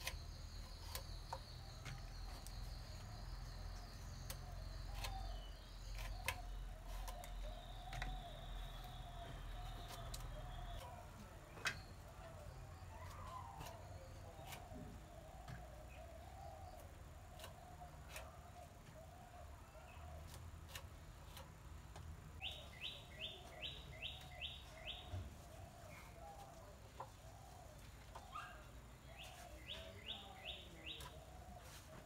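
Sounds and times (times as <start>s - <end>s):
birds calling: 0.0s - 21.4s, 22.4s - 32.0s
okra pods sliced on blade: 4.1s - 8.2s.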